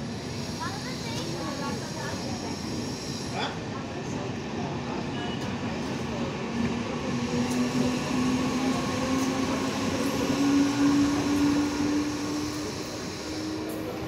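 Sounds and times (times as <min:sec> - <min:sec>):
train rolling rumble: 0:00.0 - 0:14.0
train whine rising in pitch: 0:07.3 - 0:14.0.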